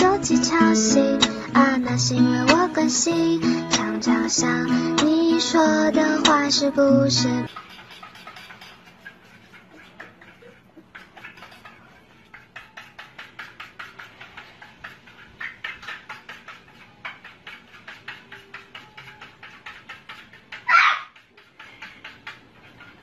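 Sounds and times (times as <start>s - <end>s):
rapid light taps on hard surface: 10.8s - 23.0s.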